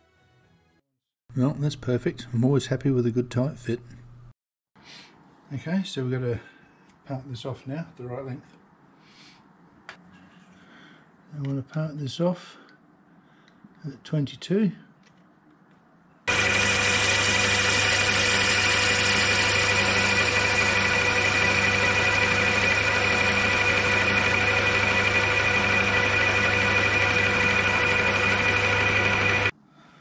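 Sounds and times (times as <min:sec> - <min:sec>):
lathe cutting tube: 0:16.3 - 0:29.5
motor hum: 0:16.3 - 0:29.5
steady whine: 0:16.3 - 0:29.5.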